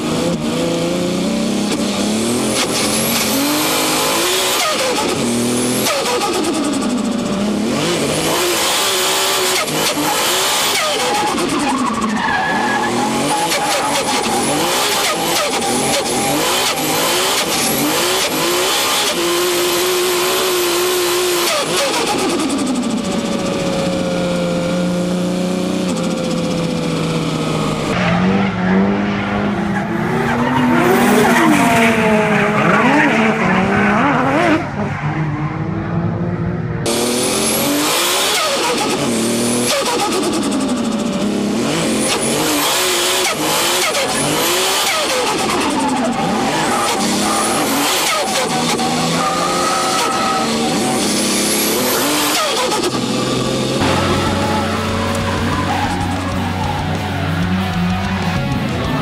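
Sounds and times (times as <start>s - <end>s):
car engine revving: 0.0s - 59.0s
tyre squeal: 9.6s - 19.2s, 43.2s - 58.1s.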